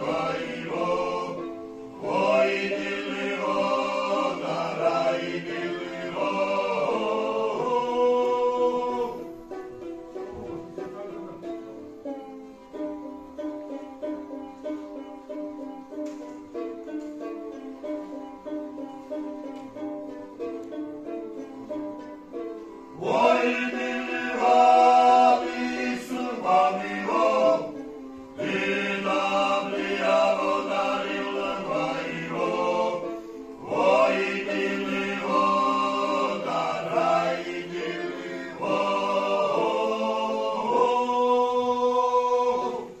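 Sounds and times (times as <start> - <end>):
men's choir singing: 0.0 - 9.7, 22.8 - 43.0
bowed fiddle: 0.0 - 43.0.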